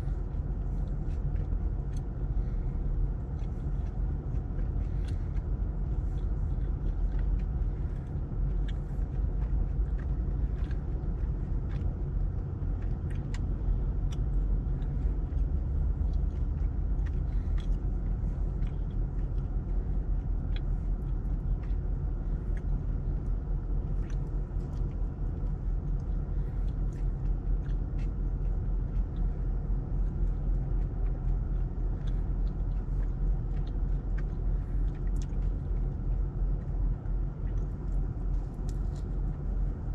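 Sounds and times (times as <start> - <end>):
car engine and road rumble: 0.0 - 39.9.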